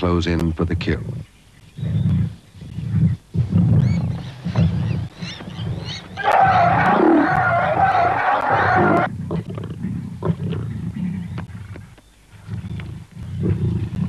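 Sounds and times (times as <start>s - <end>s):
lions growling: 0.9s - 14.0s
high distress cry: 6.2s - 9.1s.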